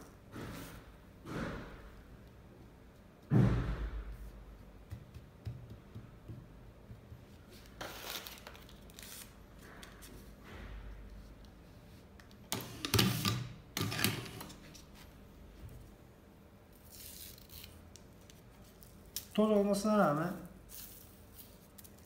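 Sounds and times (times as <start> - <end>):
rustling tobacco and paper: 16.7 - 22.0.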